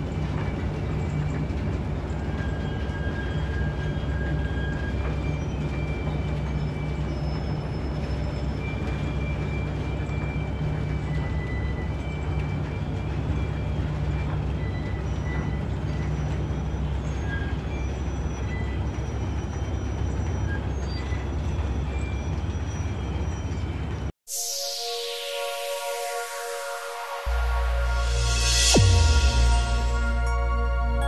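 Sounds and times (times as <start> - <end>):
high metallic squeals: 0.8 - 31.0
sustained electronic tones: 24.3 - 31.0.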